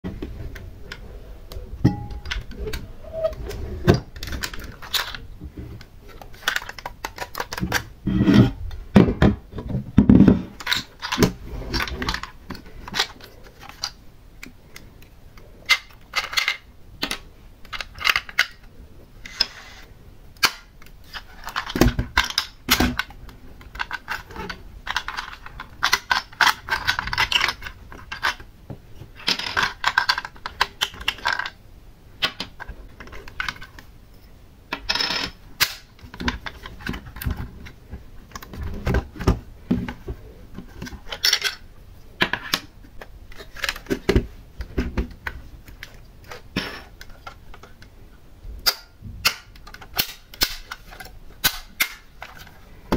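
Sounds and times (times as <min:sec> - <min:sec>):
rustling and scraping: 0:00.1 - 0:14.0, 0:17.7 - 0:20.0, 0:32.4 - 0:48.0, 0:50.6 - 0:52.9.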